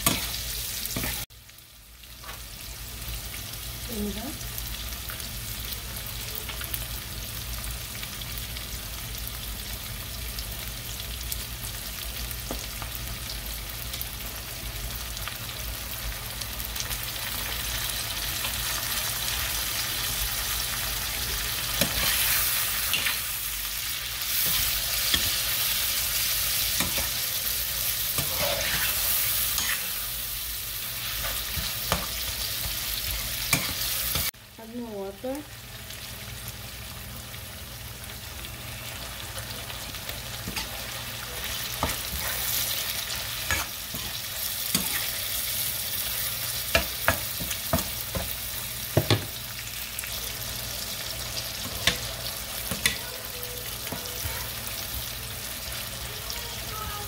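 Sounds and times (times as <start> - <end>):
fish and vegetables sizzling: 0.0 - 57.0
metal spoon scraping pan: 28.1 - 30.0.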